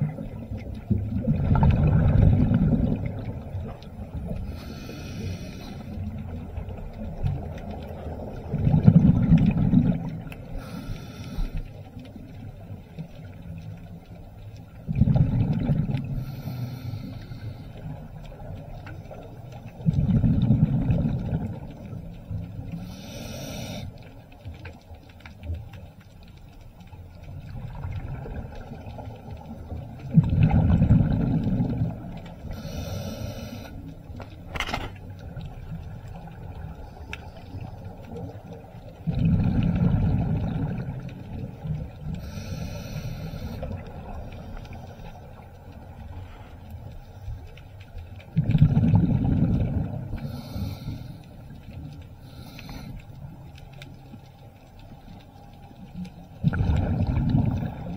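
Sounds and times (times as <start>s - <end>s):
exhaled bubbles rumbling: 0.0s - 57.9s
diver breathing through regulator: 4.4s - 6.0s, 10.5s - 11.8s, 16.1s - 17.8s, 22.8s - 24.0s, 32.4s - 33.9s, 42.2s - 45.2s, 50.1s - 51.5s, 52.2s - 53.1s.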